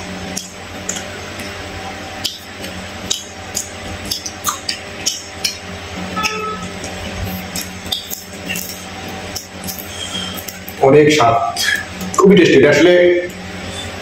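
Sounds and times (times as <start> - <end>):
chewing and crunching: 0.2 - 5.9, 6.7 - 10.8.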